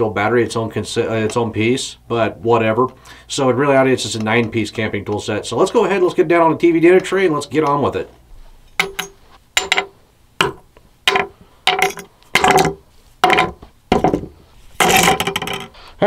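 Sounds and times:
metal tools clattering: 8.7 - 9.9, 11.1 - 14.2, 14.8 - 15.8
metal tools clinking on table: 8.8 - 9.9, 11.1 - 13.5.

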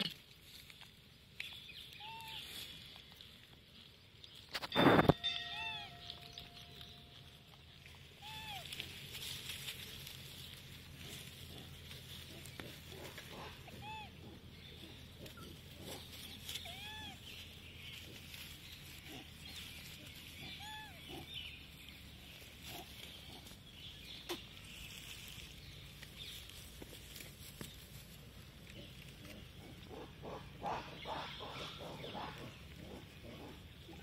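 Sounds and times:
macaques calling: 12.3 - 17.3, 28.8 - 34.0.

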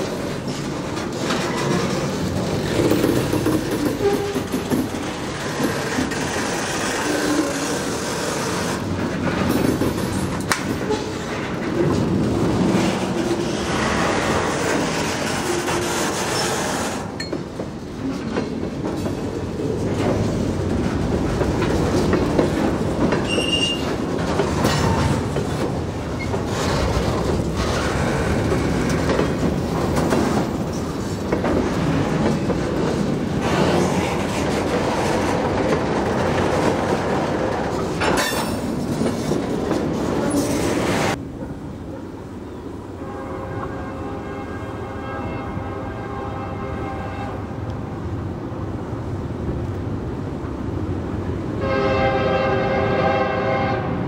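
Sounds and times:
train wheels clattering on rails: 0.0 - 42.2
thin wheel squeal: 23.3 - 23.8.

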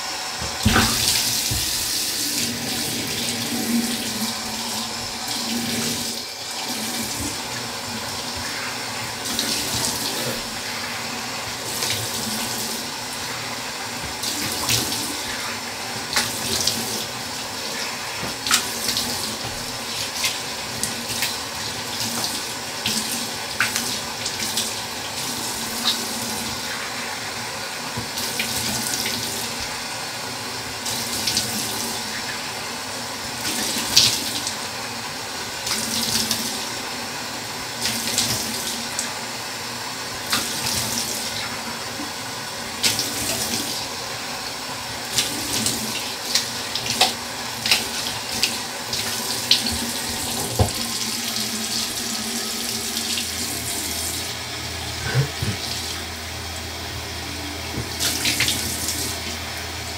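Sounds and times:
tap water running into sink: 0.3 - 34.8, 35.4 - 39.2, 40.0 - 59.9
water splashes: 0.6 - 10.8.

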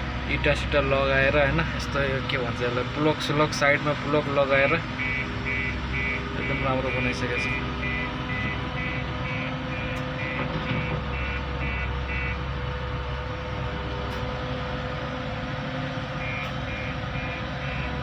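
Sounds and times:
reversing alarm beeping: 5.0 - 12.4, 16.2 - 18.0.

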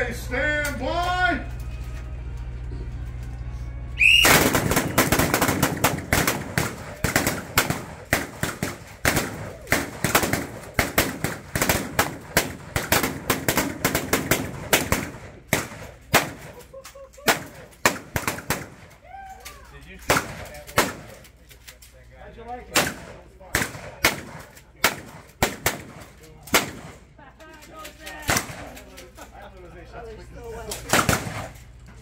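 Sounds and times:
shotguns firing: 4.0 - 19.0, 20.0 - 21.3, 22.7 - 27.1, 28.2 - 29.0, 30.7 - 31.8.

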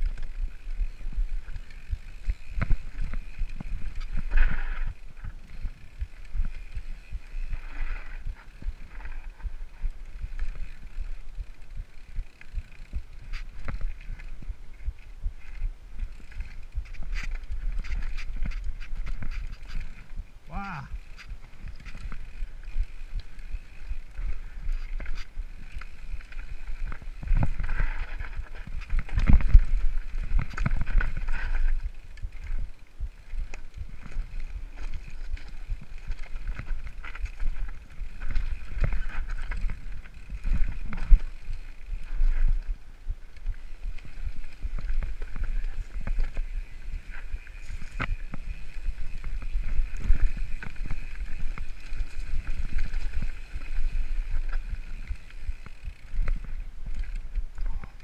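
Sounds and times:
bike rattling: 0.0 - 58.0
wind rumbling on microphone: 0.0 - 58.0
bike knocking on rocks: 1.5 - 9.6.

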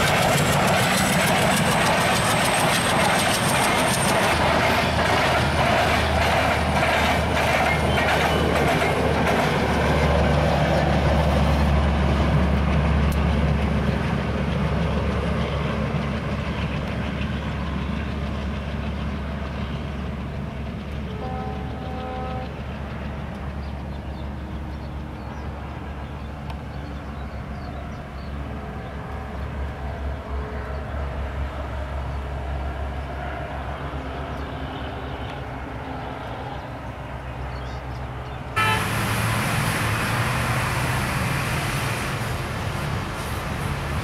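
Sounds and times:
distant train rumbling past: 0.0 - 44.0
road traffic: 0.0 - 44.0
train horn: 21.1 - 22.6, 38.6 - 39.4.

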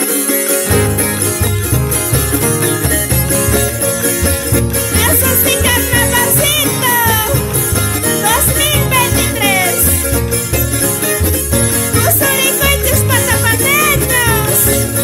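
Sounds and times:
strummed charangos and guitar: 0.0 - 15.0
high sliding vocal notes: 0.7 - 10.3, 11.7 - 15.0.

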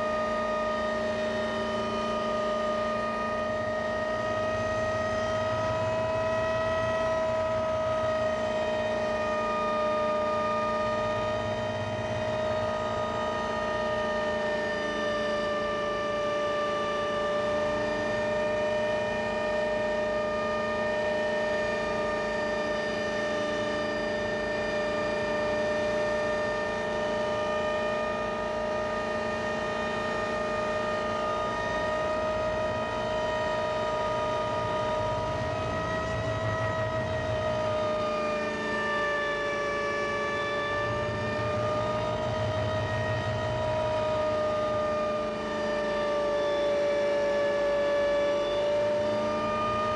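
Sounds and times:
helicopter engine drone: 0.0 - 49.9
high whine: 30.9 - 47.1.

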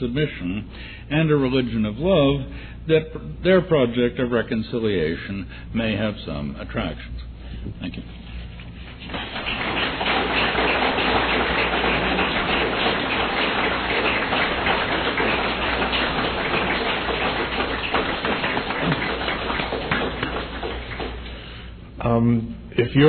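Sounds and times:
audience applauding: 9.0 - 21.7.

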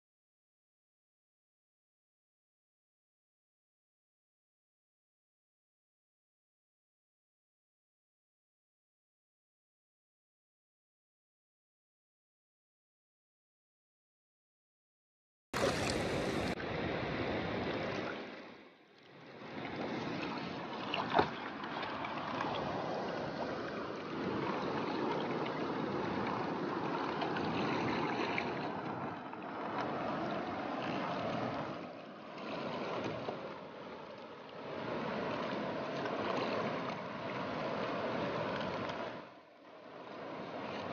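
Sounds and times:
river water splashing against boat: 15.6 - 40.9.

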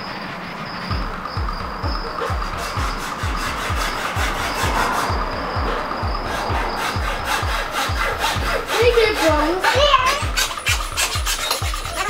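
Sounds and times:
background music beat: 0.0 - 12.0
hacksaw rasping through plastic: 6.3 - 12.0.

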